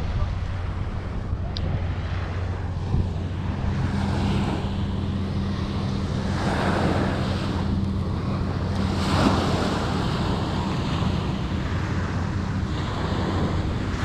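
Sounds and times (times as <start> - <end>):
small waves washing onto sand: 0.0 - 14.0
steady low hum: 0.0 - 14.0
wind buffeting microphone: 0.0 - 14.0.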